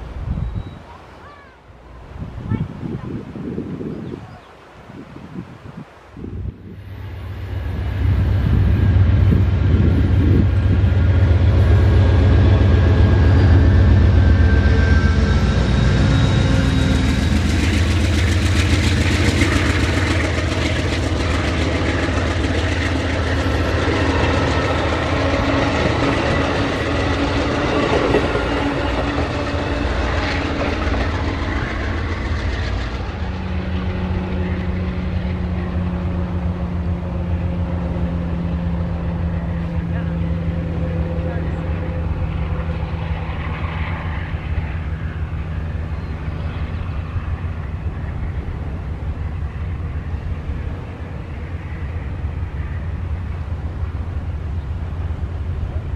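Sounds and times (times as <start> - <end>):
diesel locomotive engine drone: 0.0 - 55.9
train wheels clattering over rail joints: 15.8 - 34.7.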